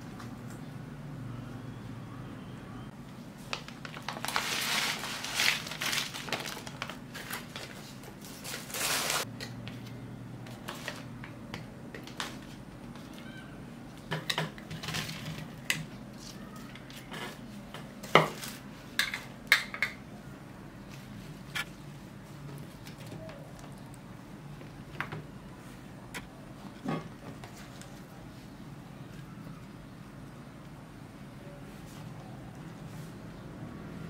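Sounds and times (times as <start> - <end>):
food rustling: 3.4 - 9.3.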